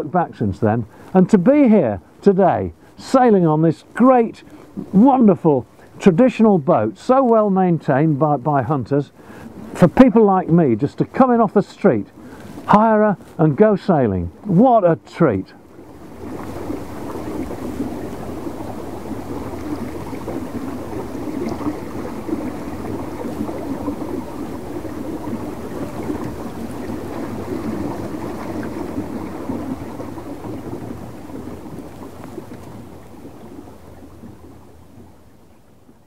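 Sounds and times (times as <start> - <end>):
water running along hull: 0.0 - 36.0
wind: 0.0 - 36.0.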